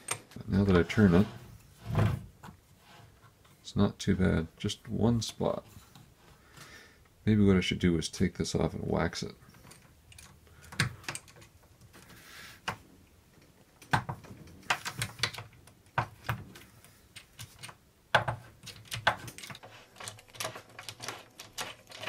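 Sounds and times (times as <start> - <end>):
screwdriver clicking and scraping: 18.6 - 22.0.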